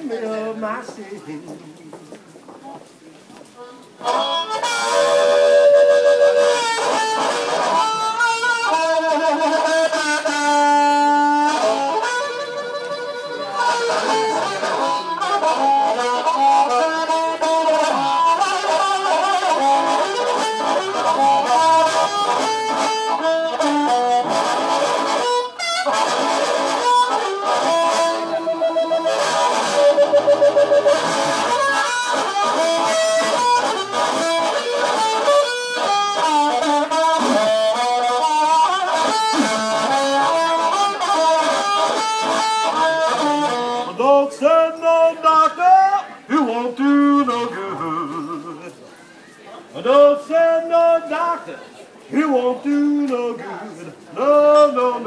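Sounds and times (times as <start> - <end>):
amplified harmonica melody: 4.0 - 44.2.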